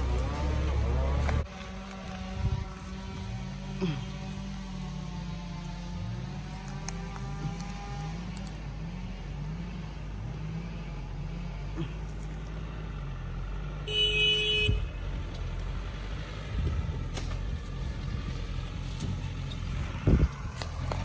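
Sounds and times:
truck diesel engine revving: 0.0s - 21.0s
horn blast: 13.8s - 14.9s.

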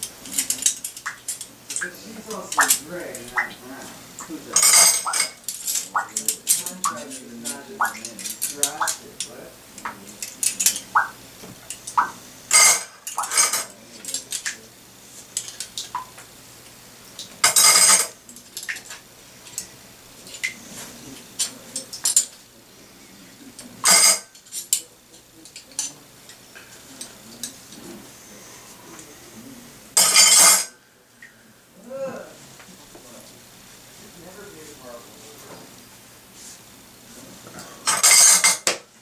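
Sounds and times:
metal cutlery clinking and clattering: 0.1s - 2.8s, 4.5s - 9.4s, 10.0s - 11.0s, 11.7s - 14.6s, 15.4s - 15.9s, 17.4s - 19.7s, 21.4s - 22.4s, 23.8s - 24.9s, 30.0s - 30.8s, 37.8s - 38.8s.

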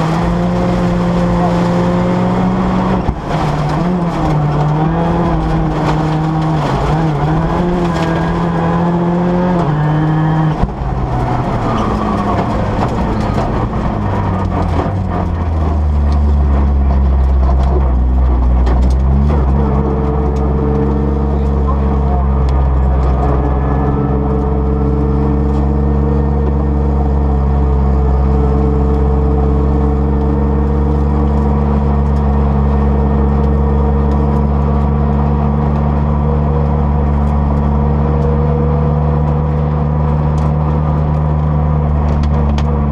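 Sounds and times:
car engine idling inside cabin: 20.3s - 42.9s.

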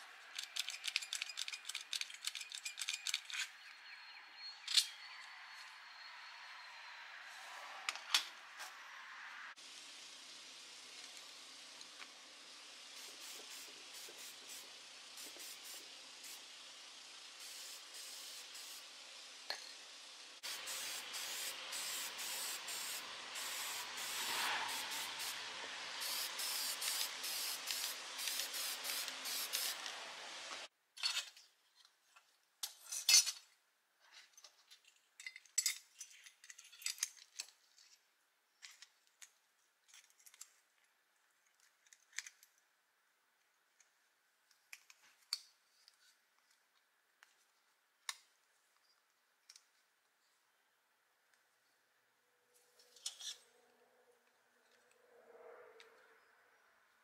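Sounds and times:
small metal parts clinking: 0.3s - 3.7s, 34.3s - 38.0s
aerosol spray can hissing: 11.0s - 19.4s, 20.3s - 30.7s.

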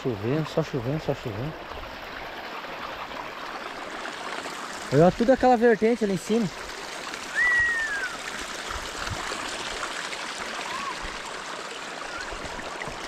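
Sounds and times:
spring water rushing: 0.0s - 13.0s
short falling whistle: 7.3s - 8.2s.

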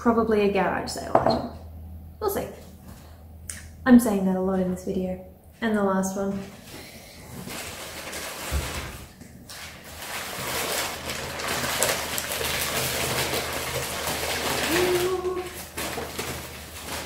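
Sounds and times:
newspaper crinkling and rustling: 6.3s - 17.0s.

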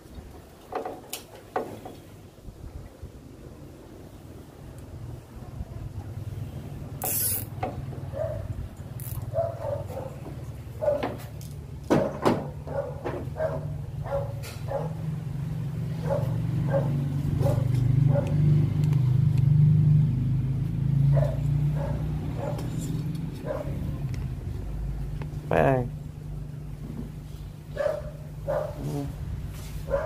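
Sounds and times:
dog barking: 8.1s - 8.5s, 9.3s - 11.2s, 12.4s - 15.0s, 16.0s - 18.4s, 21.1s - 22.7s, 23.4s - 23.9s, 27.7s - 28.9s
clicks and rustles of cable ties: 9.0s - 9.3s, 11.2s - 11.9s.

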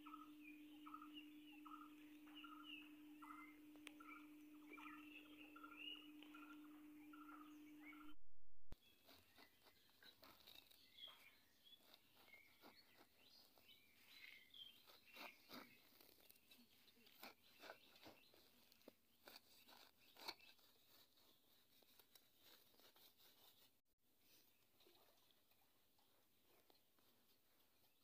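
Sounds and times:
faint bird chirps: 0.0s - 23.0s
dry soil crunching: 8.8s - 23.7s
hand spade scraping soil: 8.8s - 23.8s.

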